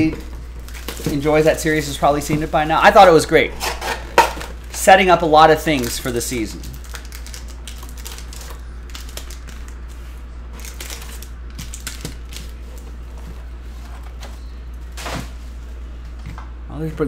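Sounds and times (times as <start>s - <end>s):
steady low hum: 0.0s - 17.0s
foil packs crinkling: 0.4s - 13.2s.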